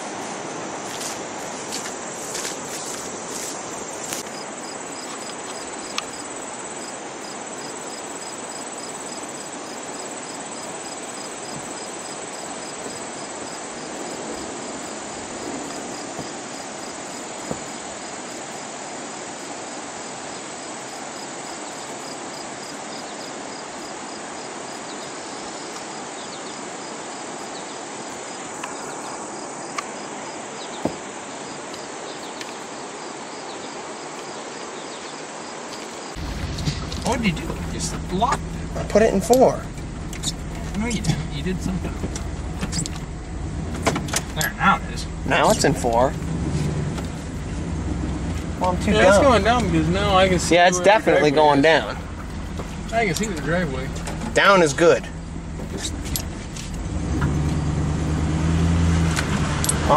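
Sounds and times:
insects singing: 0:01.7 - 0:18.8, 0:35.7 - 0:59.9
pulsed insect chirp: 0:01.7 - 0:18.8, 0:20.3 - 0:58.2
steady rushing noise: 0:36.1 - 0:58.2.

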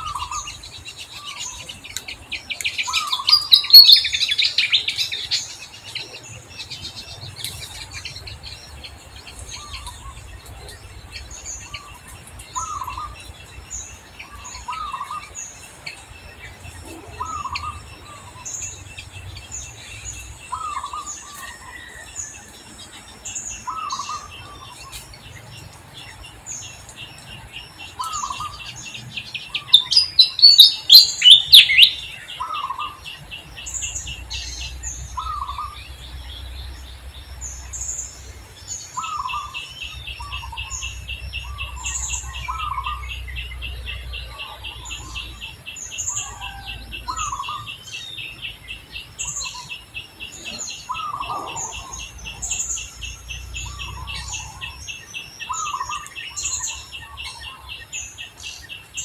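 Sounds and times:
birds chirping: 0:00.0 - 0:59.0
fast bird trill: 0:26.1 - 0:33.0.

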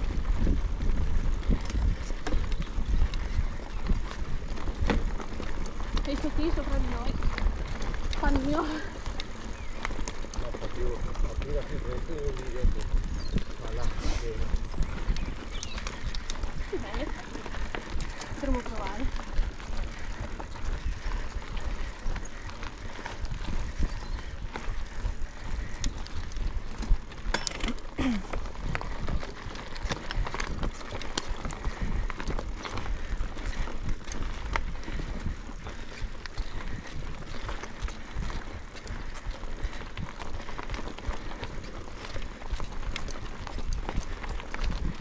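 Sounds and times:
bike rattling and knocking: 0:00.0 - 0:45.0
tyres rolling over rough ground: 0:00.0 - 0:45.0
wind rumble on microphone: 0:00.0 - 0:45.0.

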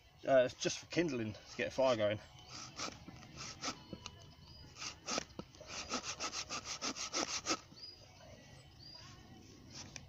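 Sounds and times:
hand saw cutting wood: 0:02.5 - 0:03.8, 0:04.8 - 0:07.7.

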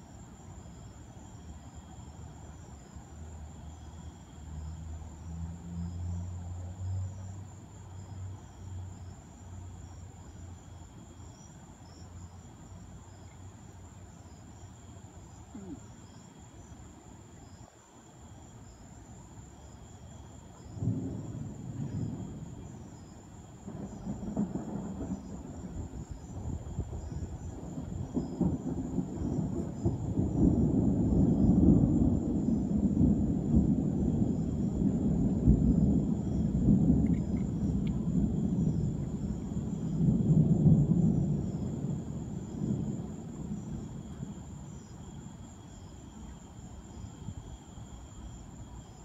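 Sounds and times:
crickets chirping: 0:00.0 - 0:49.0
rolling thunder: 0:20.6 - 0:47.4.

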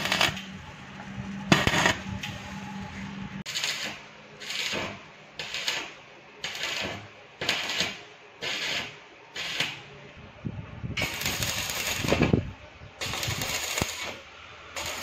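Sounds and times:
arc welding crackling bursts: 0:00.0 - 0:00.5, 0:01.5 - 0:02.4, 0:03.5 - 0:09.9, 0:11.0 - 0:15.0.

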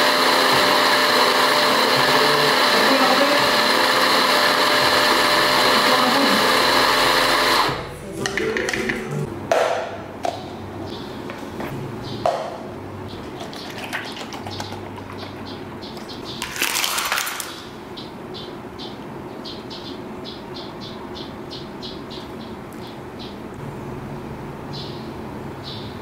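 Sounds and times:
ice cubes clattering into cup: 0:16.4 - 0:17.6.

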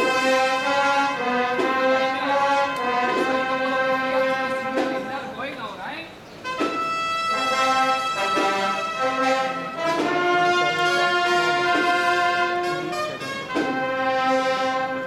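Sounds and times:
brass band playing a march: 0:00.0 - 0:05.4, 0:06.4 - 0:15.0.

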